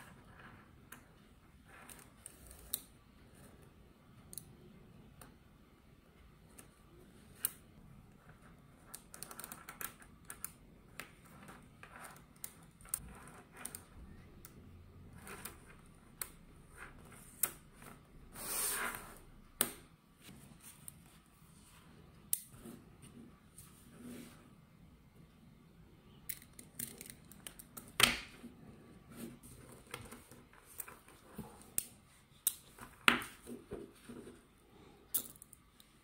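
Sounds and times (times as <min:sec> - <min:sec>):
magnet balls clicking together: 0:26.3 - 0:28.2, 0:35.1 - 0:35.9.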